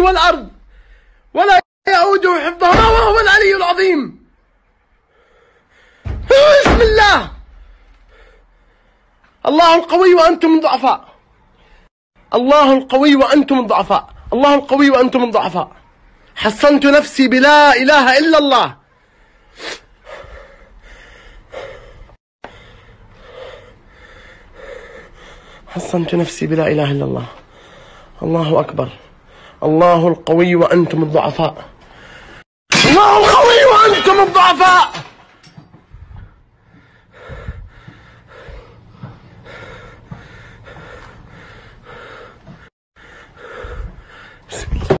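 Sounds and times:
man breathing hard: 0.6 - 1.3, 4.9 - 6.2, 7.5 - 9.3, 18.9 - 25.7, 27.4 - 28.2, 29.1 - 29.6, 31.8 - 32.5, 35.8 - 45.0.

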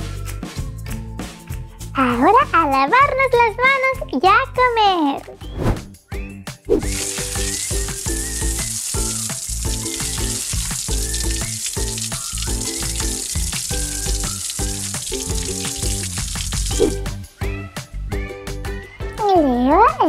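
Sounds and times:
background music: 0.0 - 20.0
water running from a faucet: 6.8 - 17.2.

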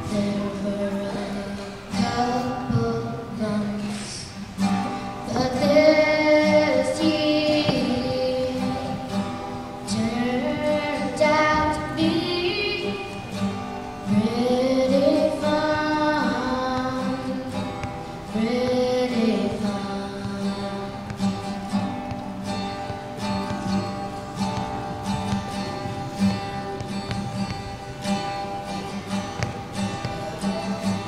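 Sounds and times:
person singing: 0.0 - 4.4, 5.2 - 9.3, 9.9 - 22.0
acoustic guitar strumming: 0.0 - 31.0.

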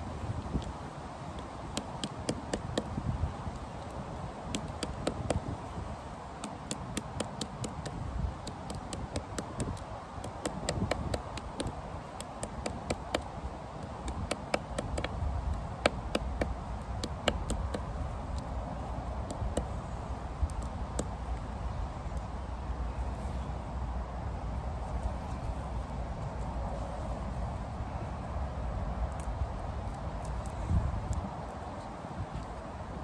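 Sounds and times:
stick tapping and crushing stem: 0.4 - 5.6, 6.4 - 18.6, 19.2 - 21.4.

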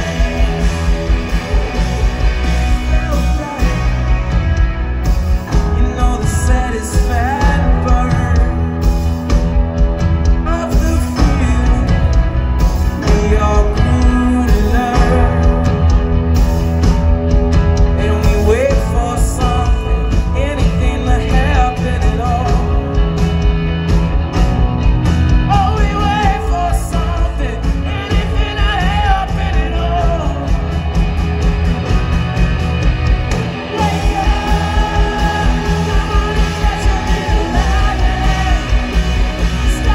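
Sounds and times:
man singing: 0.0 - 4.7, 5.4 - 9.1, 10.2 - 16.3, 17.8 - 23.2, 25.5 - 30.8, 33.5 - 39.9
live rock band: 0.0 - 39.9.

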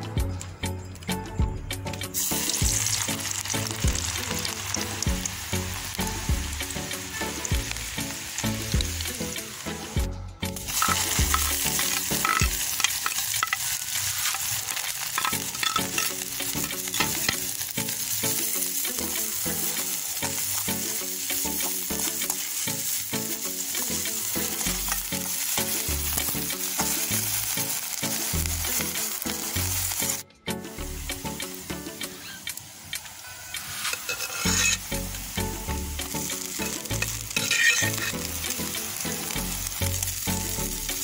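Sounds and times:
onions sizzling in hot oil: 2.0 - 30.2, 30.8 - 41.0
spatula scraping and knocking pan: 10.8 - 17.4, 33.5 - 34.8, 36.6 - 38.2.

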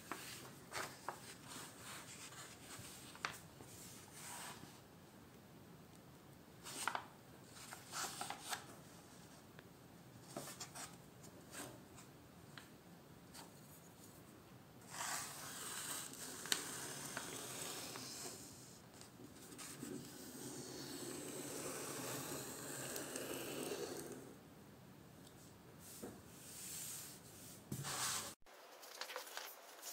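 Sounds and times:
parchment sheets rustling: 0.0 - 4.6.

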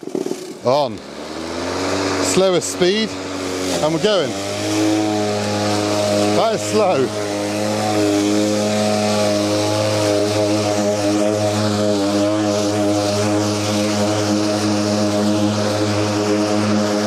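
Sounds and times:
electric mower cutting grass: 0.0 - 17.0.

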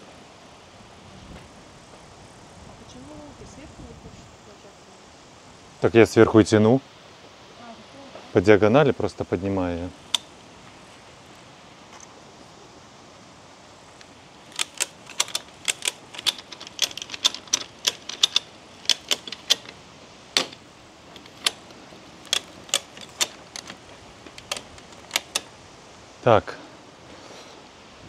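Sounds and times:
ratchet strap clicking: 14.5 - 19.8, 20.4 - 25.5.

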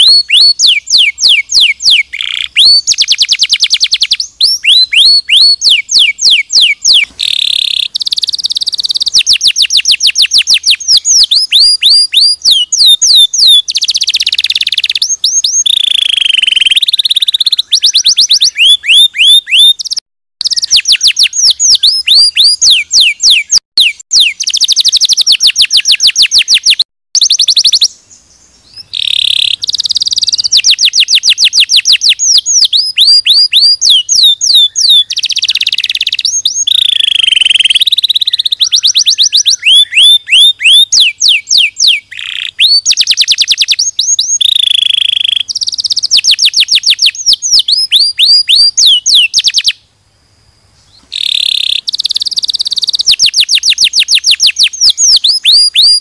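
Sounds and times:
canary singing trills: 0.0 - 49.9, 50.8 - 56.0
held whistled tones: 8.0 - 27.9.

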